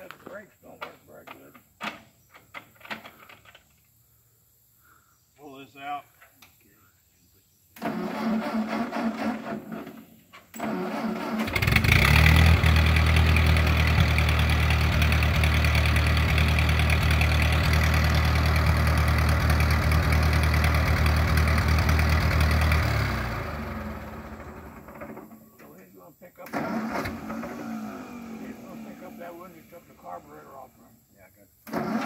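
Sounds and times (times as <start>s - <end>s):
tractor engine running: 7.8s - 25.8s, 26.4s - 30.6s.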